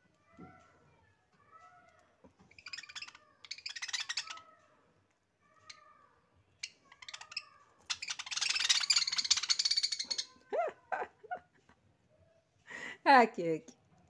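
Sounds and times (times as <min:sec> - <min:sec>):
budgerigars chattering: 0:02.6 - 0:04.4, 0:06.6 - 0:10.3.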